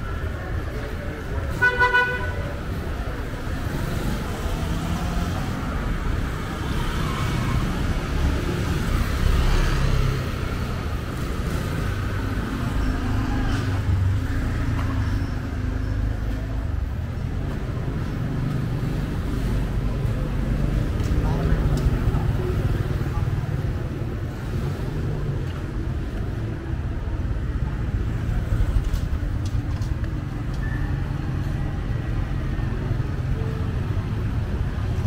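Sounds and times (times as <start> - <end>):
motorbikes and cars passing: 0.0 - 35.0
street traffic rumbling: 0.0 - 35.0
vehicle horn toots: 1.6 - 2.4.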